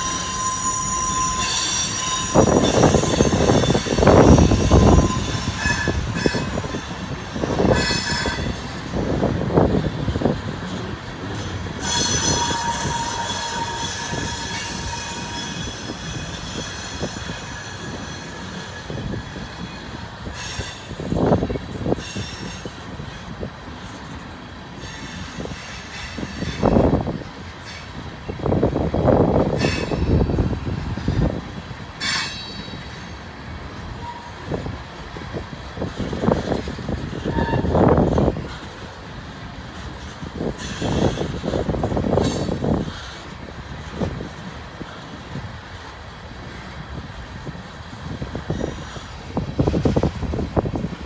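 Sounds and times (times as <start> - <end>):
high wheel squeal: 0.0 - 9.2, 11.4 - 21.3, 32.0 - 33.2, 37.2 - 38.6
train wheels rumbling on rail: 0.0 - 51.0.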